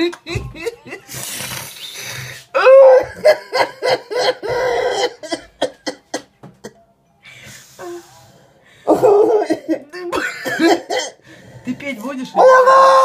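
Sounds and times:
man laughing hard: 2.8 - 6.3.

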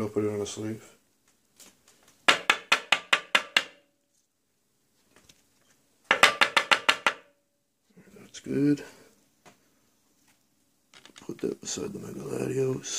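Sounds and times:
taps on hard tabletop: 2.3 - 3.8, 6.1 - 7.3.

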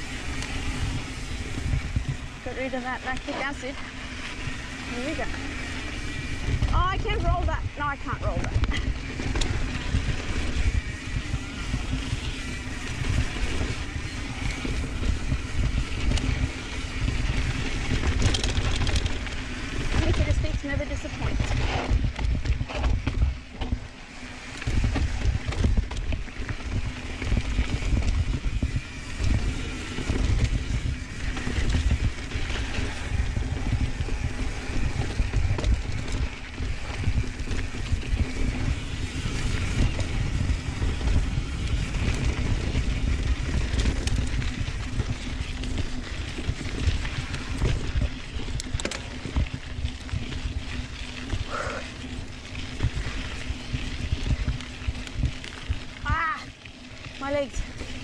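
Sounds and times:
bike rattles and knocks: 0.0 - 58.0
bike tyres rumbling on dirt: 0.0 - 58.0
wind on microphone: 24.6 - 50.8.

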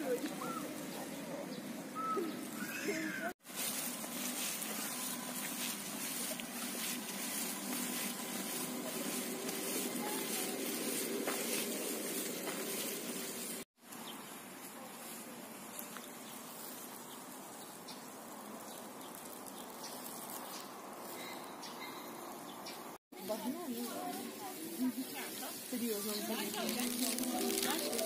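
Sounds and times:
bird chirps: 19.2 - 22.9.

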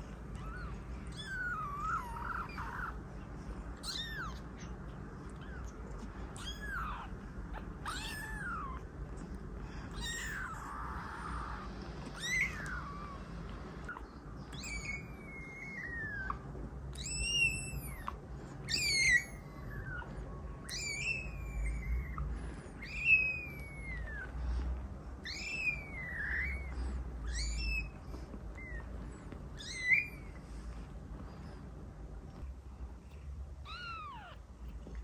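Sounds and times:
kitten mewing: 0.2 - 3.1, 3.8 - 9.0, 9.9 - 20.0, 25.2 - 29.0, 33.6 - 34.5.

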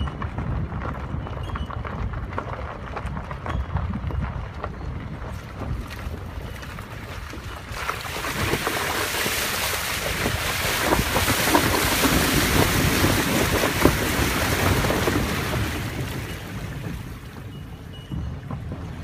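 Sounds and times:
low rumble of car: 0.0 - 19.0
water splashing around car: 5.3 - 19.0.

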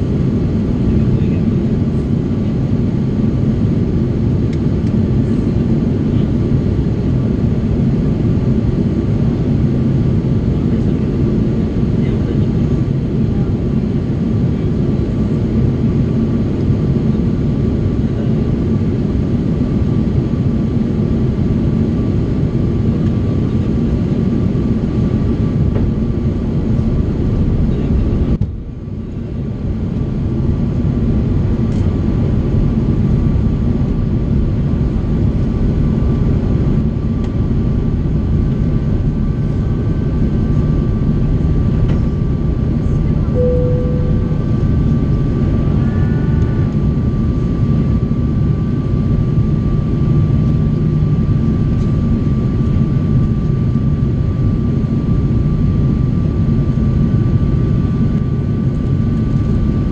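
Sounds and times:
airliner cabin airflow: 0.0 - 59.8
jet engines droning: 0.0 - 59.9
faint high whine: 43.2 - 45.9.

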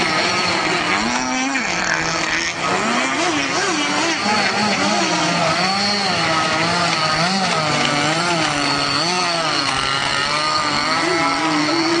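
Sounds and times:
small engines buzzing: 0.0 - 12.0.

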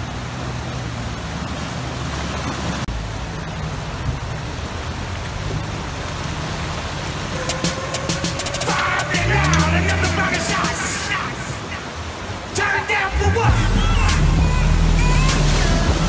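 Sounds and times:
rushing churning water: 0.0 - 16.0.

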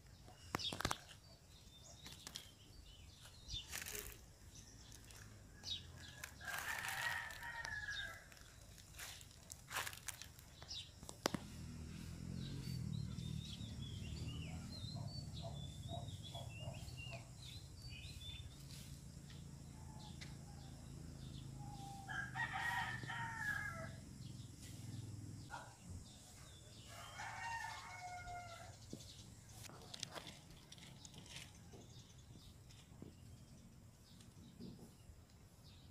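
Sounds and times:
small birds chirping: 0.0 - 35.9
rooster crowing: 4.9 - 8.5, 21.6 - 24.0, 26.8 - 28.8.

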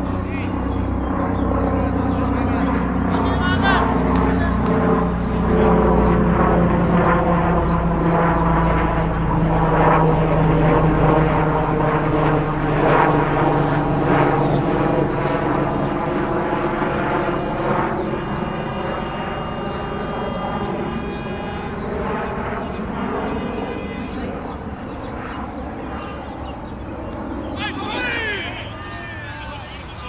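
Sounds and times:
engine drone: 15.9 - 25.1.

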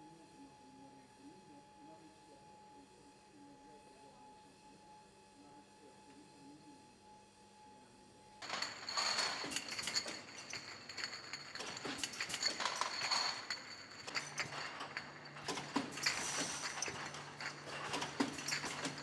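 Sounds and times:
glass bottles clinking: 8.4 - 19.0
machine clatter: 8.4 - 19.0.

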